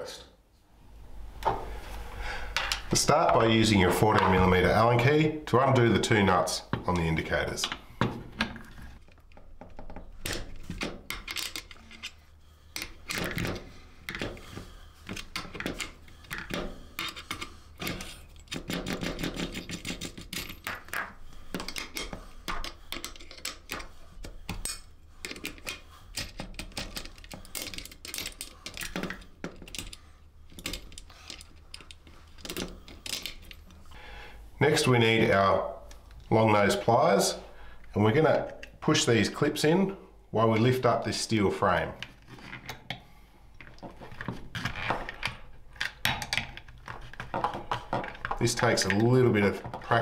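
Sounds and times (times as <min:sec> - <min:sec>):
parts rattling on a bench: 0:12.8 - 0:33.9.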